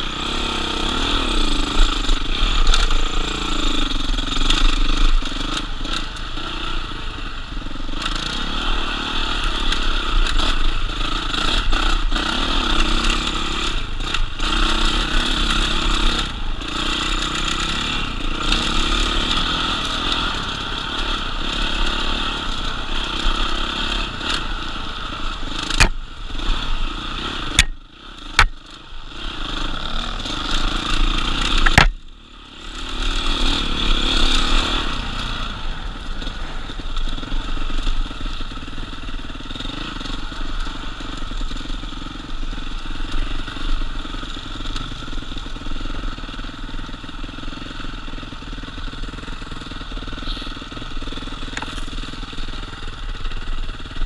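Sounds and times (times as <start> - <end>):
dirt bike engine: 0.0 - 54.0
sharp knocks: 31.6 - 32.0.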